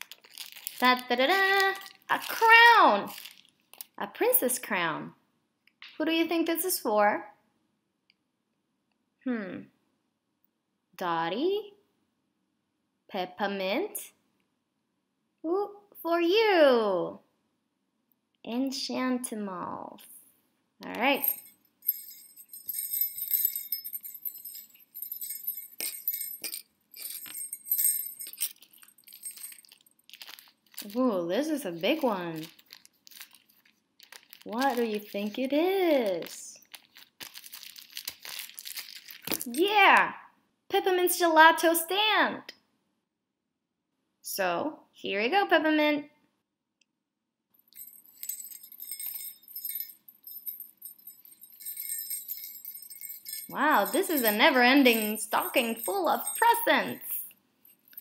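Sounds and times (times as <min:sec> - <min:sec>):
cloth rustling: 0:00.0 - 0:03.5, 0:21.2 - 0:31.0, 0:31.8 - 0:35.1, 0:47.7 - 0:56.7
jingle bells jingling: 0:00.3 - 0:03.4, 0:20.9 - 0:35.4, 0:37.4 - 0:39.9, 0:47.6 - 0:58.0.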